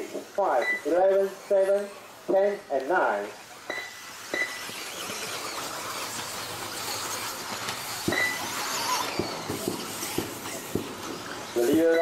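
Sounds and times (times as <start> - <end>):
toy cars racing on dirt: 0.0 - 12.0
short beep: 0.6 - 0.9, 3.7 - 4.6.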